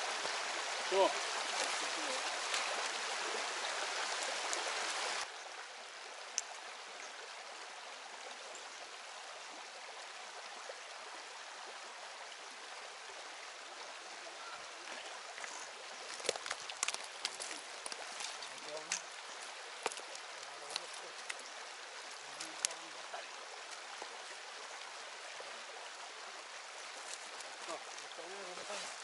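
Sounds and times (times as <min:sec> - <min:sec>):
river rushing over rocks: 0:00.0 - 0:05.3.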